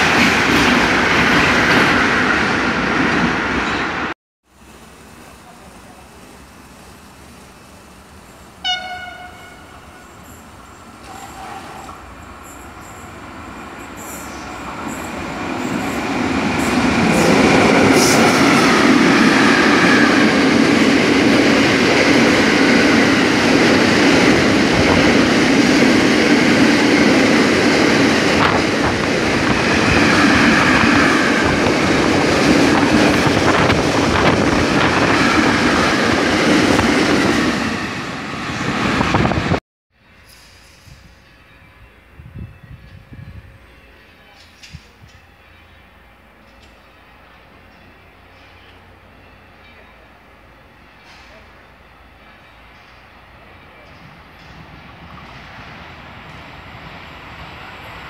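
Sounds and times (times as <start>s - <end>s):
freight train wheels rumbling: 4.8s - 39.6s.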